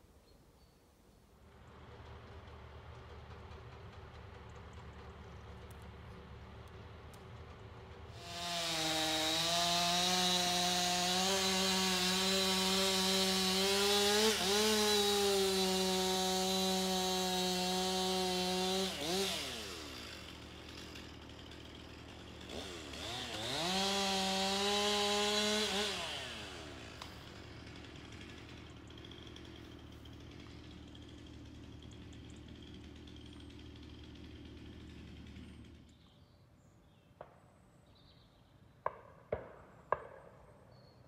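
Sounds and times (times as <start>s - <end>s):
chainsaw revving: 5.4s - 36.0s.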